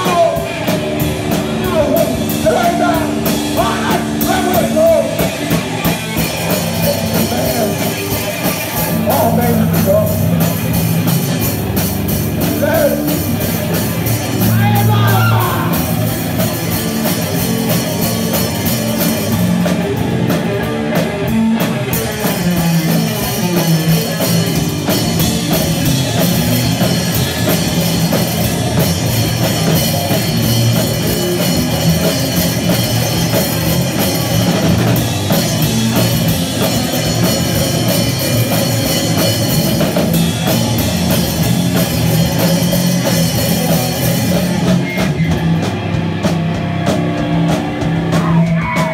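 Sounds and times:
drum kit pounding: 0.0s - 48.9s
loud electric guitar: 0.0s - 48.9s.

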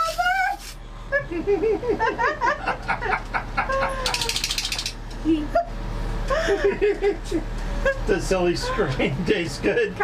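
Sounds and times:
people laughing and squealing: 1.1s - 4.5s.

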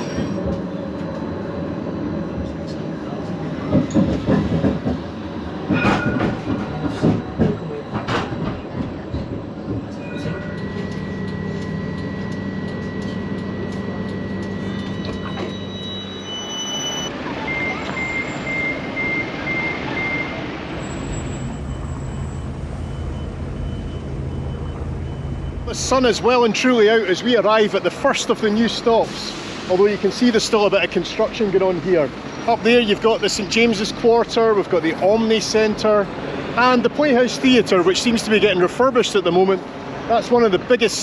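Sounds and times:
tram wheels clattering on rails: 0.0s - 16.5s
tram humming: 0.0s - 41.0s
short high beeps: 10.0s - 20.4s.

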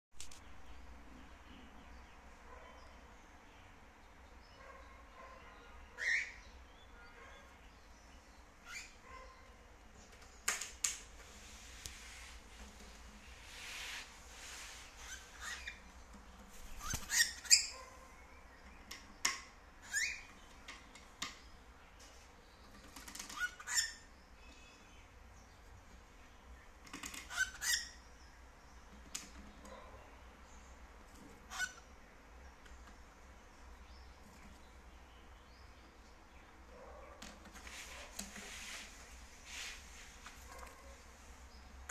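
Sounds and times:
cockatiel chirping: 6.0s - 6.4s, 8.6s - 9.0s, 15.0s - 15.8s, 16.6s - 17.9s, 19.8s - 20.4s, 23.1s - 24.1s, 27.2s - 28.0s, 31.5s - 31.8s.

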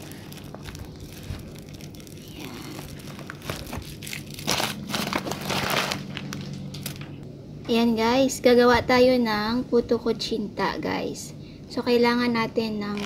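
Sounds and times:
paper and plastic bag crinkling: 0.0s - 7.2s.

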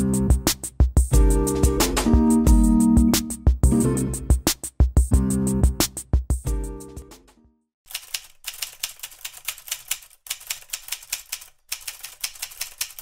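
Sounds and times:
typewriter clicking: 7.9s - 13.0s.

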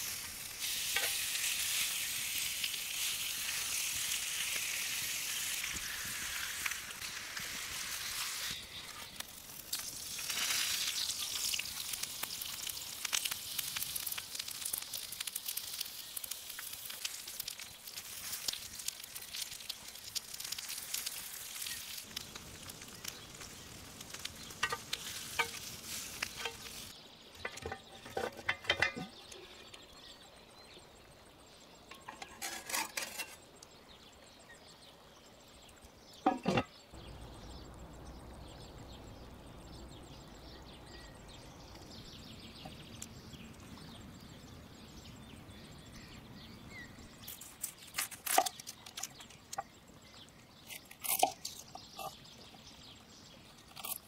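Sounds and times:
steak sizzling on a grill: 0.0s - 27.0s.

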